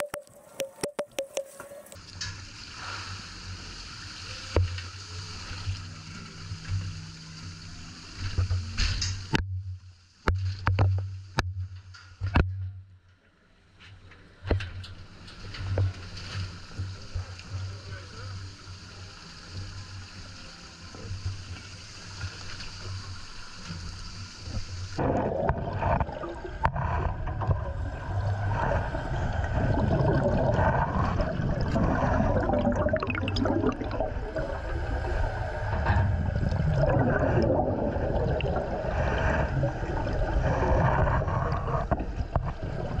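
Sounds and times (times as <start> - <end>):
water gurgling and bubbling: 25.0 - 43.0.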